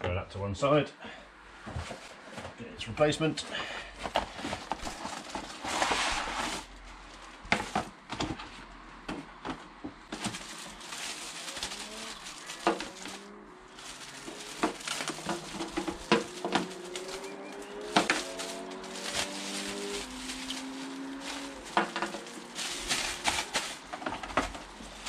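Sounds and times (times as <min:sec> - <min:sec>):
plastic bag crinkling: 0:04.0 - 0:08.0, 0:10.1 - 0:25.0.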